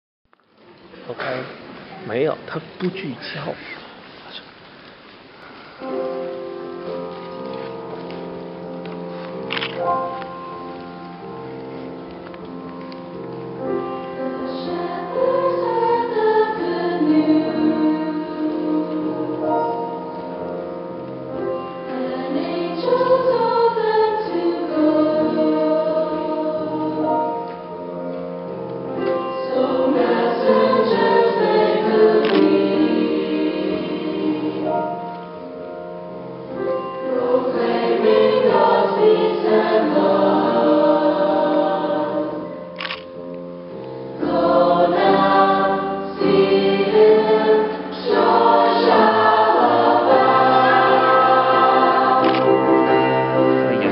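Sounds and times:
piano: 0.3s - 53.9s
mixed choir singing: 13.9s - 20.1s, 21.4s - 27.8s, 29.0s - 35.1s, 36.6s - 42.7s, 44.1s - 53.9s.

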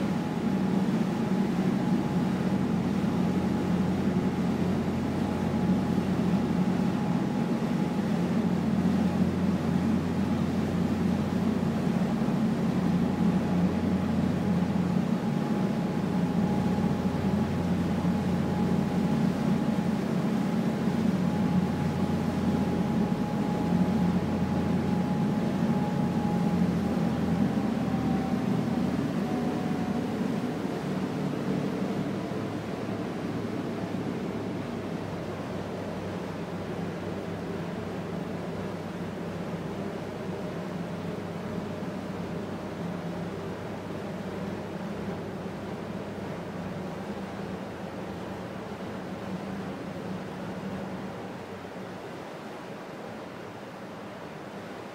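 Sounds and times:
thin whine: 0.0s - 51.6s
ferry engines droning: 0.0s - 51.8s.

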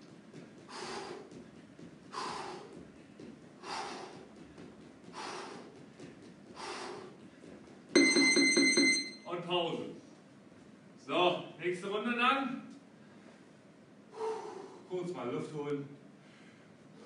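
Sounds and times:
man breathing hard: 0.6s - 7.7s, 14.1s - 14.9s, 16.2s - 17.0s.

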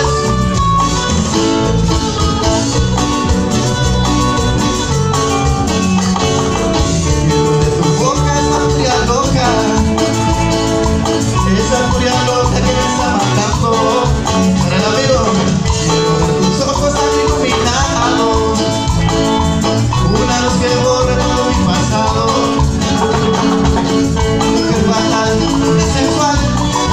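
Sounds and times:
live cumbia band playing: 0.0s - 26.9s
voices singing: 7.0s - 26.9s.

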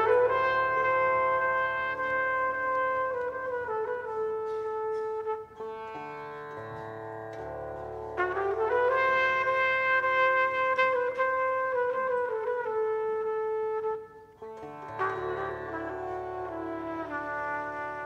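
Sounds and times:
trumpet playing long bending notes: 0.0s - 18.0s.

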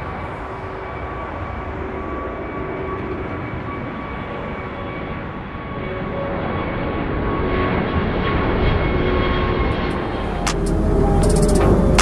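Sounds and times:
jet airliner flying overhead: 0.0s - 12.0s
thin high whine: 9.7s - 12.0s.

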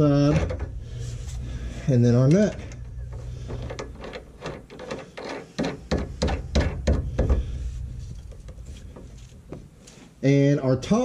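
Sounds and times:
metal parts clicking and knocking: 2.2s - 7.5s.

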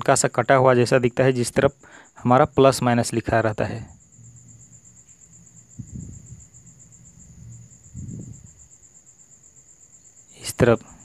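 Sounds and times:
faint high-pitched pulsing trill: 0.0s - 11.0s
soft low rustles: 3.7s - 8.8s.

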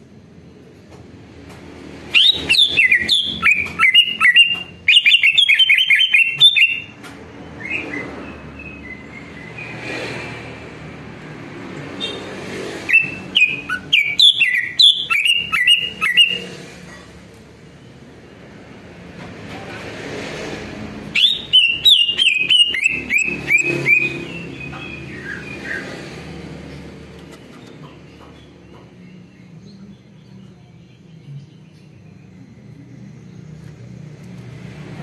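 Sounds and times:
bird singing rapid chirps: 2.0s - 9.8s, 11.9s - 16.9s, 21.1s - 34.1s.

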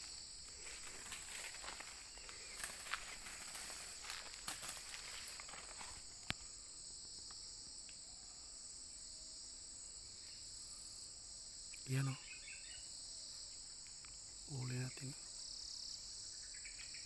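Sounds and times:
light rustling: 0.0s - 6.4s
insect drone: 0.0s - 17.0s.

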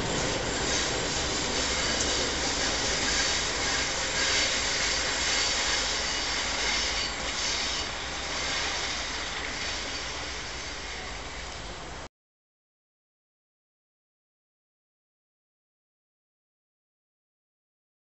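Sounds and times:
distant train rumble: 0.0s - 12.1s
wheels hissing on rail: 0.0s - 12.1s.

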